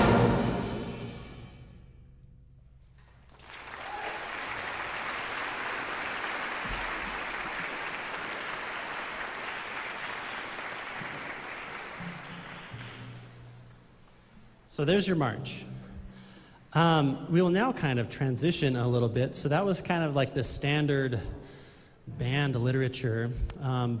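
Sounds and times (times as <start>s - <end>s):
concert band final chord: 0.0s - 1.8s
audience applauding: 3.2s - 13.5s.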